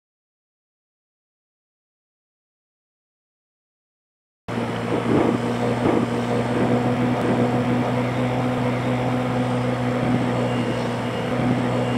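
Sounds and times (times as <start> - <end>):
motorbike engine running: 4.5 - 11.9
wind and road noise: 4.5 - 11.9.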